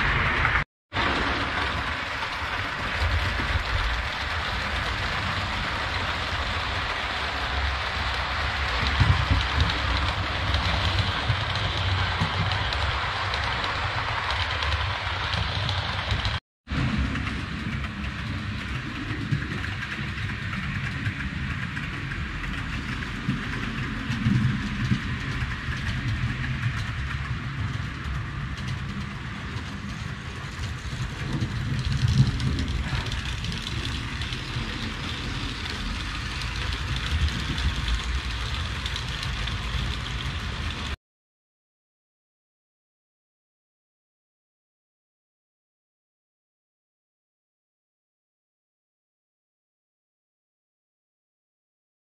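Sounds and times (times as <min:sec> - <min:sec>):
model trains rumbling on track: 0:00.0 - 0:41.0.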